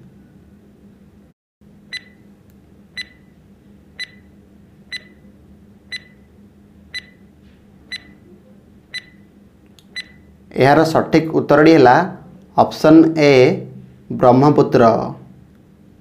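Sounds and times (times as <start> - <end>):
faint steady hum: 0.0 - 16.0
countdown timer ticks: 7.0 - 7.2.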